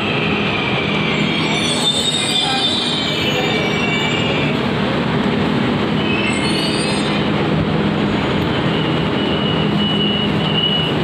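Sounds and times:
high squealing tones: 0.0s - 4.6s
train running noise: 0.0s - 11.0s.

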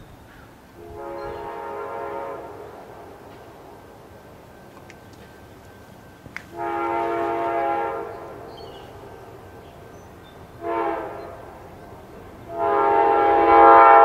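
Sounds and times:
locomotive air horn blasts: 0.8s - 3.2s, 6.5s - 9.6s, 10.5s - 14.0s.

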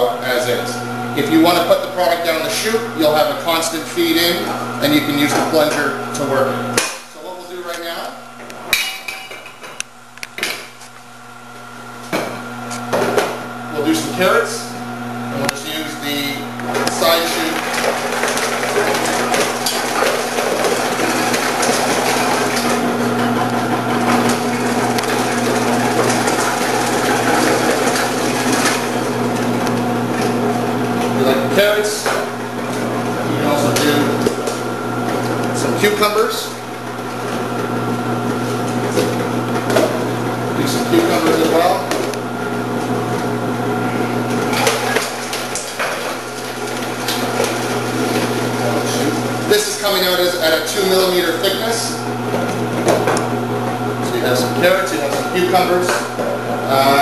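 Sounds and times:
cutting machine motor hum: 13.5s - 57.0s
vegetable cutter motor hum: 17.5s - 31.6s.

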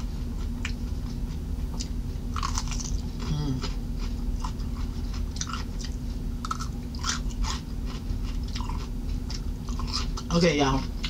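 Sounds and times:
steady low hum: 0.0s - 11.0s
chewing cucumber crunches: 1.8s - 10.3s.

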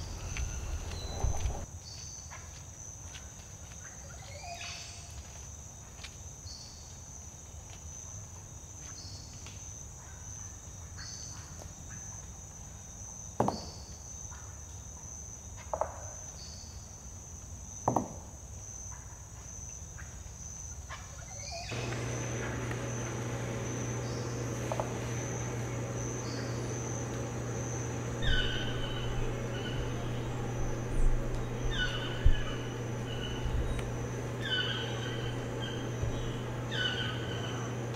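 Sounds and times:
low hum: 0.0s - 1.6s, 21.7s - 37.9s
insects droning: 0.0s - 1.7s, 21.4s - 37.9s
insect chirp: 0.0s - 2.1s, 4.2s - 15.7s, 16.3s - 37.8s.

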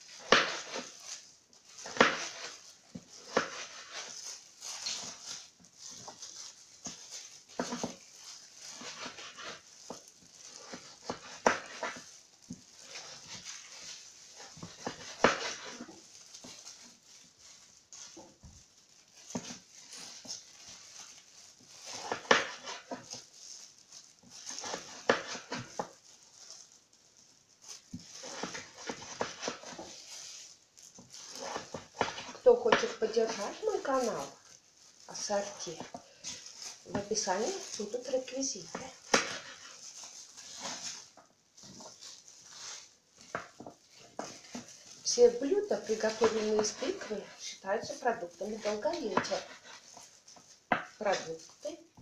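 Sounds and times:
knife slicing pumpkin: 0.2s - 1.1s, 1.8s - 2.6s, 3.2s - 5.2s, 8.7s - 12.1s, 12.8s - 16.0s, 21.8s - 23.1s, 24.5s - 25.9s, 28.0s - 29.9s, 31.3s - 34.4s, 38.7s - 39.8s, 45.4s - 49.9s.

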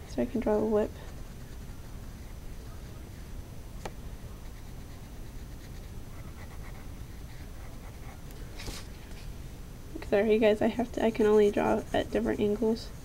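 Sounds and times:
low background noise: 0.0s - 13.0s
pencil scratching on paper: 1.0s - 2.4s, 4.4s - 8.2s, 10.7s - 13.0s.

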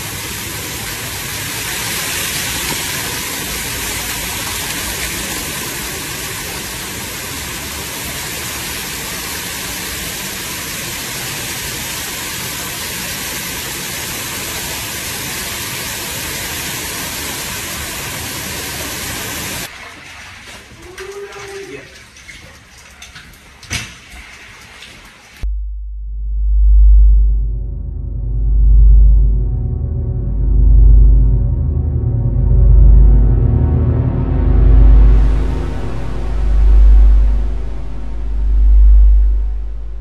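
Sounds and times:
water pouring from ceiling: 0.0s - 25.4s, 33.7s - 40.0s.

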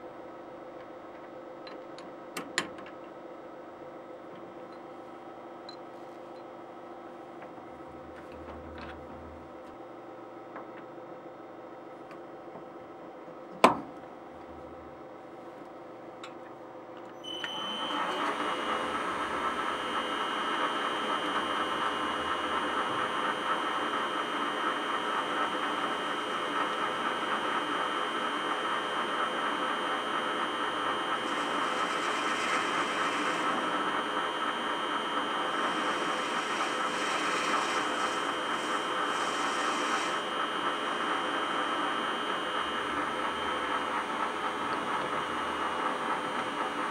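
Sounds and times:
metal lathe whining: 17.2s - 46.9s.

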